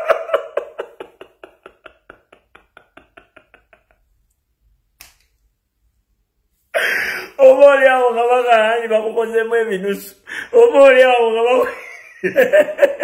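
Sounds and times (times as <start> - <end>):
man laughing: 0.0 - 4.2, 11.6 - 13.0.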